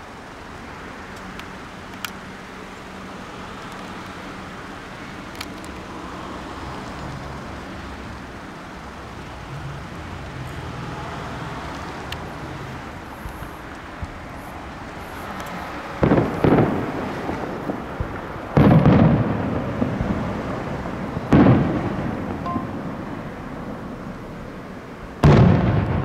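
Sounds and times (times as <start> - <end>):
low background noise: 0.0 - 26.0
firework shells booming: 13.2 - 23.3, 25.2 - 26.0.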